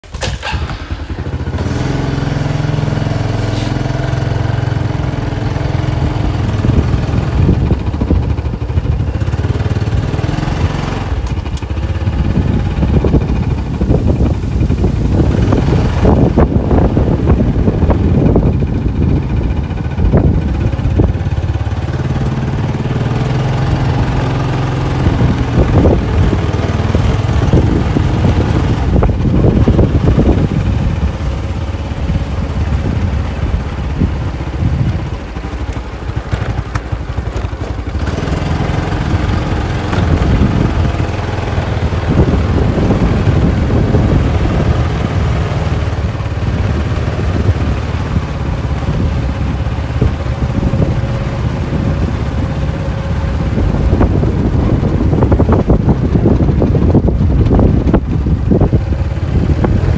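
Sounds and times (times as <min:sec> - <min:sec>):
motorbike engine running: 0:00.0 - 0:59.9
wind buffeting microphone: 0:00.1 - 0:59.9.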